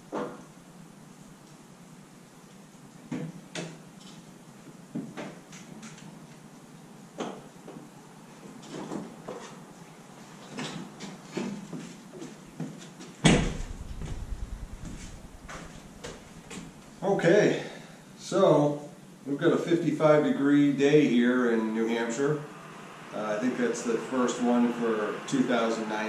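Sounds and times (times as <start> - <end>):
door shutting thud: 13.2 - 16.8.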